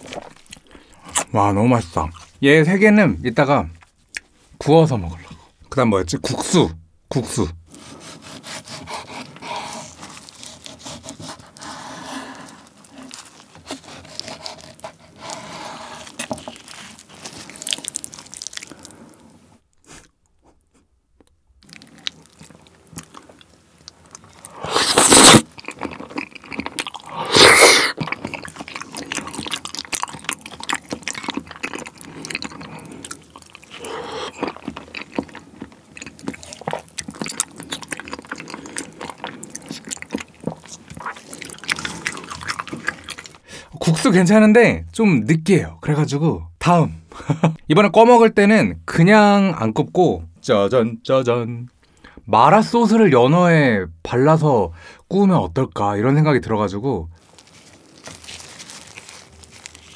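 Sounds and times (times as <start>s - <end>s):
wet soft chewing: 0.0s - 1.3s, 8.2s - 20.2s, 21.6s - 43.5s, 57.2s - 59.9s
loud slurps: 24.4s - 25.8s, 27.0s - 29.4s, 32.1s - 34.8s.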